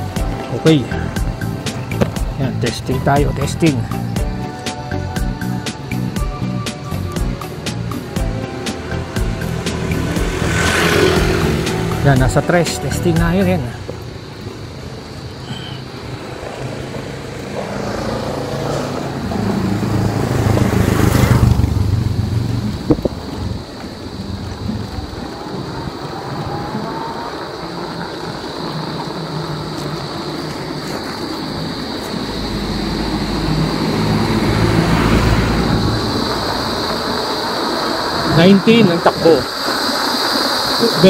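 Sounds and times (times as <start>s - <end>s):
tyre noise: 0.0s - 41.0s
electric bike motor whirring: 5.2s - 12.1s, 13.8s - 41.0s
wind buffeting microphone: 19.0s - 41.0s.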